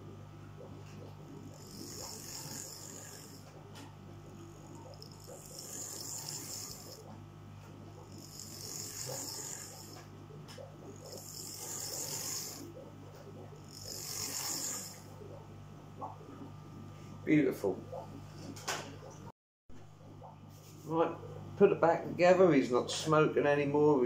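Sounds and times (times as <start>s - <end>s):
model train motor buzzing whine: 1.4s - 3.6s, 4.3s - 7.2s, 8.0s - 10.1s, 11.0s - 12.8s, 13.7s - 15.1s.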